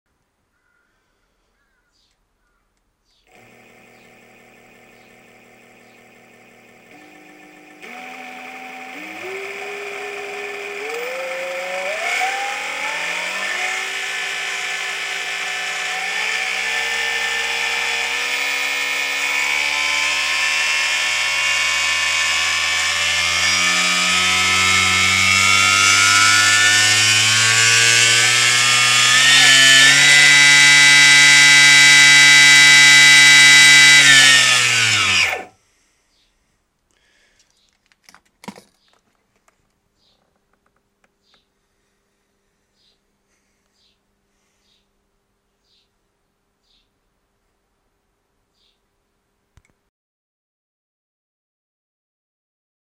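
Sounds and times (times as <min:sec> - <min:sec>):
electric motor whine rising: 0:03.3 - 0:35.5.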